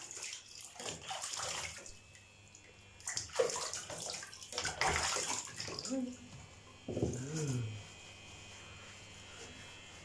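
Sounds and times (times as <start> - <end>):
water splashing in plastic basin: 0.0 - 6.0.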